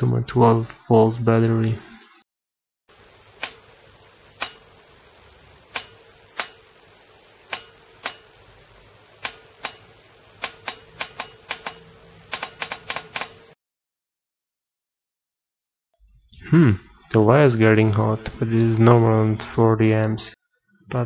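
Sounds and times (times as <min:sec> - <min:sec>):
faint steady hum: 0:02.9 - 0:13.6
solenoid clicking: 0:03.3 - 0:03.7, 0:04.3 - 0:04.7, 0:05.7 - 0:06.7, 0:07.5 - 0:08.3, 0:09.2 - 0:13.5.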